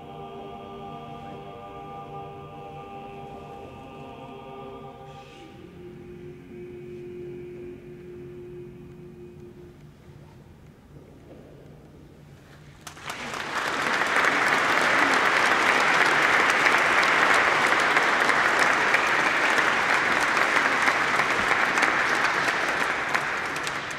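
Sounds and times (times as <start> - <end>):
audience applauding: 12.8 - 23.9.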